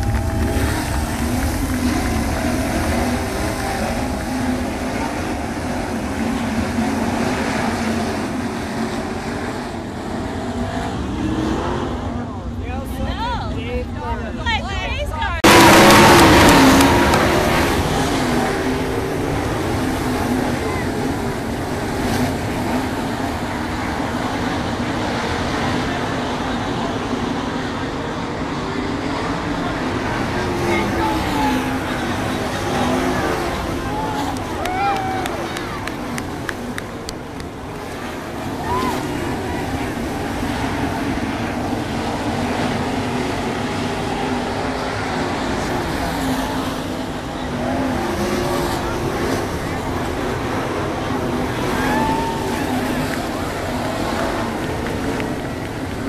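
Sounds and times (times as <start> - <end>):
racing car engines roaring: 0.0 - 56.0.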